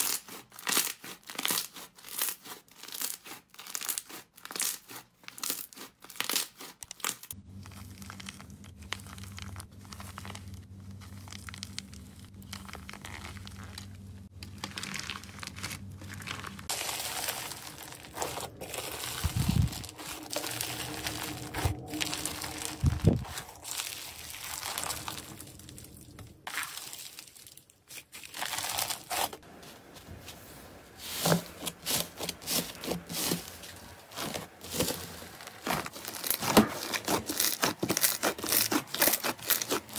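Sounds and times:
slime coating crunching: 0:00.0 - 0:29.7, 0:31.0 - 0:39.9
slime crinkling and crackling: 0:00.0 - 0:39.9.

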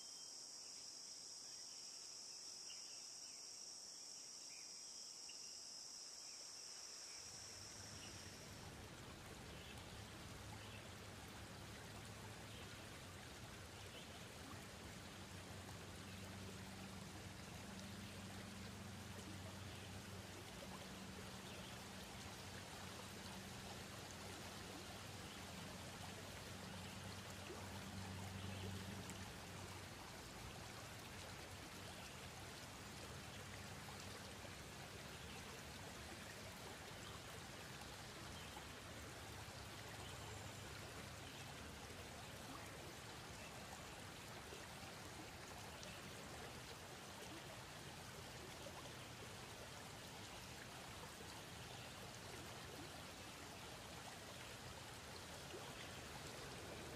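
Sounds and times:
faint steady hiss: 0:00.0 - 0:56.9.

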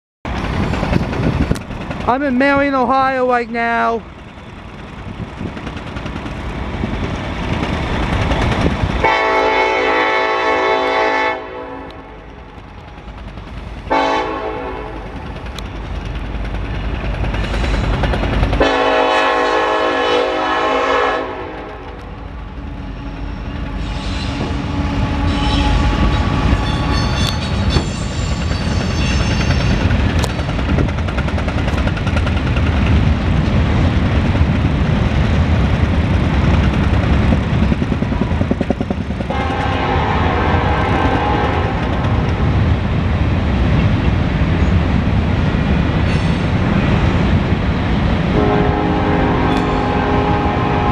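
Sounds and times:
locomotive air horn blasts: 0:09.0 - 0:12.2, 0:13.9 - 0:15.0, 0:18.6 - 0:21.9, 0:39.3 - 0:41.8, 0:48.4 - 0:50.9.

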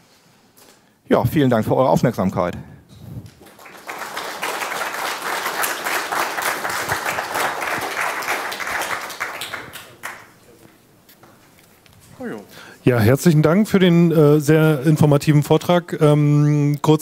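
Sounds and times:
audience applauding: 0:03.3 - 0:10.5.

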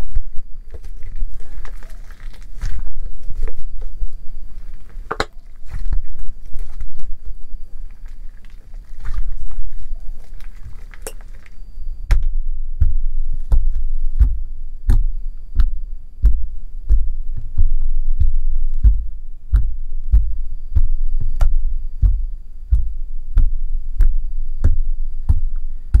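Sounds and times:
slime being squished: 0:00.2 - 0:11.6.

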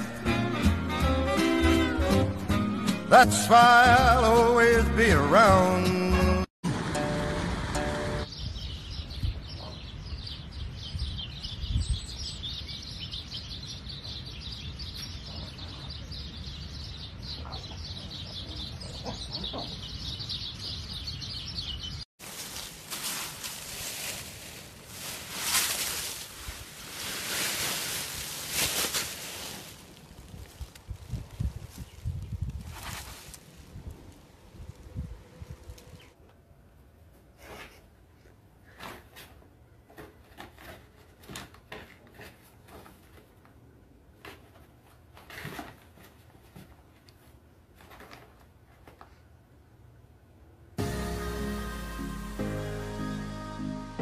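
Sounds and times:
dry leaves rustling and crunching: 0:22.2 - 0:34.9.

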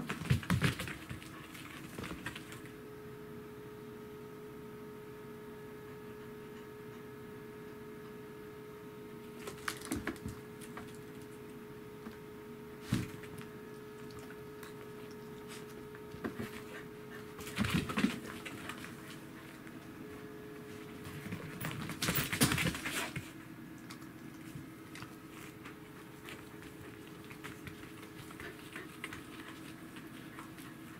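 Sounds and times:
faint steady hum: 0:00.0 - 0:30.9
dog panting: 0:26.0 - 0:30.9.

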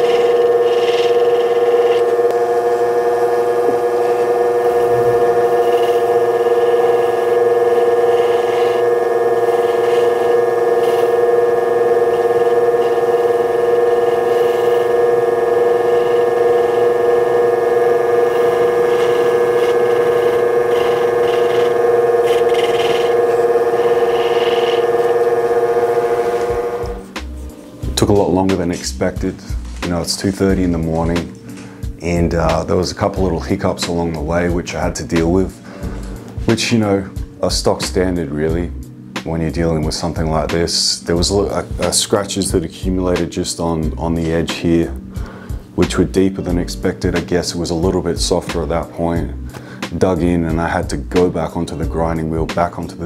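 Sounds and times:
stone rubbing on polishing wheel: 0:00.0 - 0:27.6
polishing motor humming: 0:00.0 - 0:37.4.

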